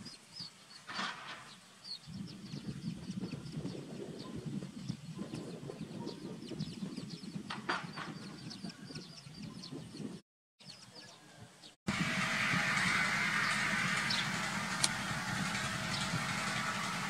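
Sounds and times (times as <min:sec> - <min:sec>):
chicks peeping: 0:08.0 - 0:10.1.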